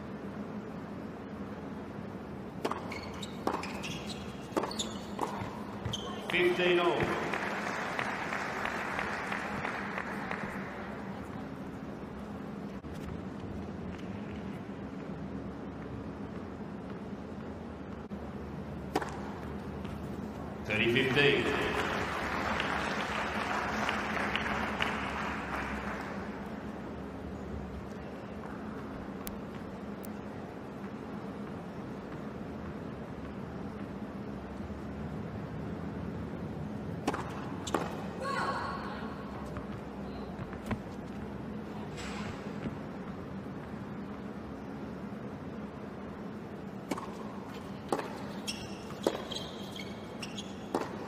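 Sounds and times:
steady background hum: 0:00.0 - 0:51.0
tennis ball hit by racket: 0:02.6 - 0:03.8, 0:18.9 - 0:19.4, 0:37.0 - 0:38.0, 0:46.8 - 0:47.3, 0:47.9 - 0:48.4, 0:49.0 - 0:49.3, 0:50.7 - 0:51.0
shoe squeaks: 0:02.7 - 0:06.4, 0:47.9 - 0:51.0
spectators applauding: 0:07.1 - 0:11.0, 0:21.0 - 0:26.4.

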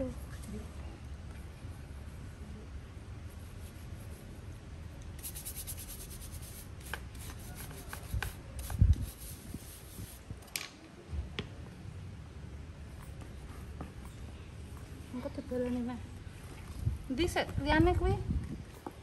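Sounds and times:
brush scrubbing shell: 0:05.1 - 0:10.2.

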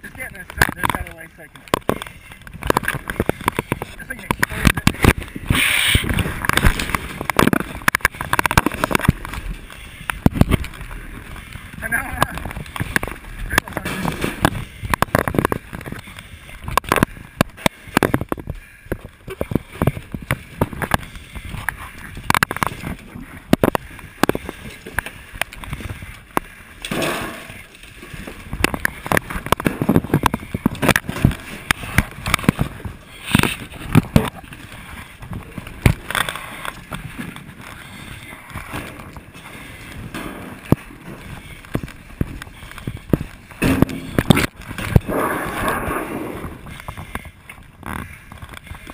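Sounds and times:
gear knocking and rubbing: 0:00.4 - 0:45.1.

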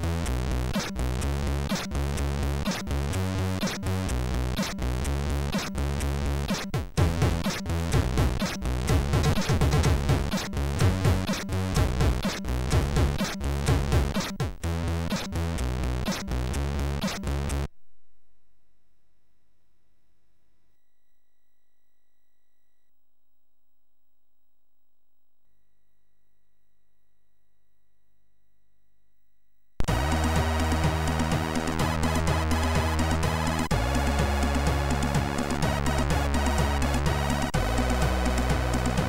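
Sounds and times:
chiptune music: 0:29.8 - 0:39.0.

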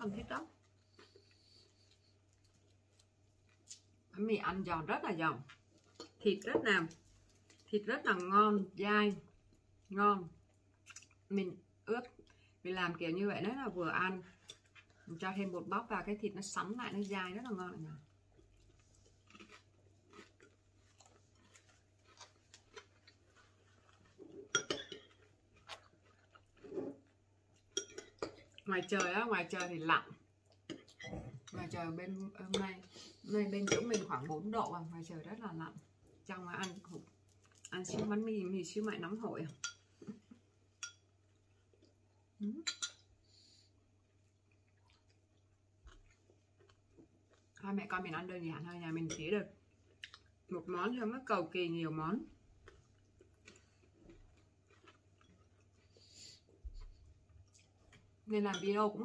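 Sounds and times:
chewing: 0:10.5 - 0:11.3, 0:16.9 - 0:28.7, 0:36.7 - 0:37.8, 0:43.8 - 0:47.6, 0:49.7 - 0:50.5, 0:52.6 - 0:58.2.

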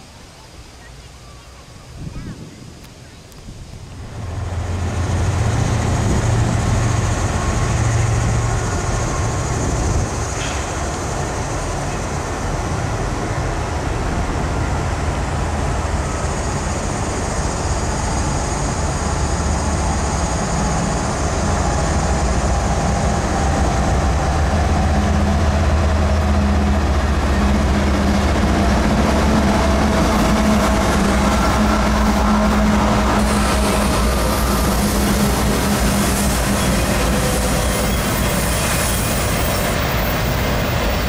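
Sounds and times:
diesel locomotive engine drone: 0:00.0 - 0:41.0
train rail rumble: 0:00.0 - 0:41.0.

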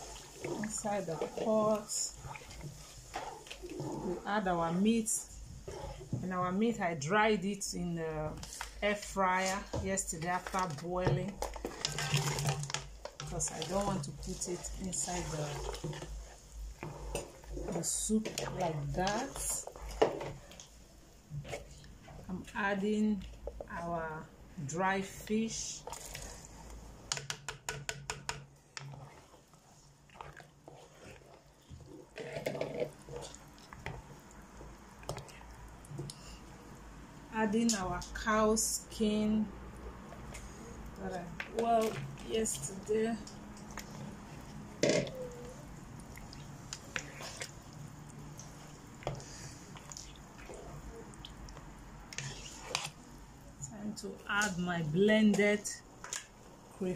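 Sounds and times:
thick stew squelching and sloshing: 0:00.0 - 0:27.1, 0:28.6 - 0:55.0
soft wet stirring: 0:00.0 - 0:56.9.

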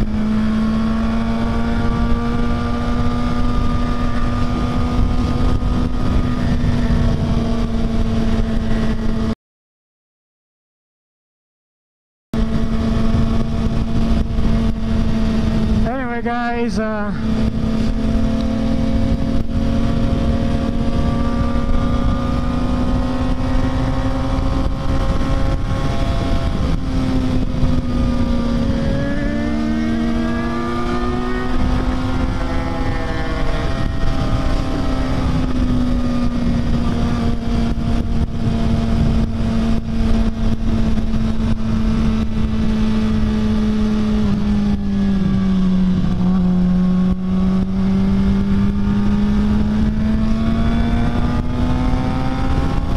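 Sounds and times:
wind noise: 0:00.0 - 0:09.3, 0:12.4 - 0:52.9
motorcycle engine cruising: 0:00.0 - 0:09.4, 0:12.4 - 0:52.9.

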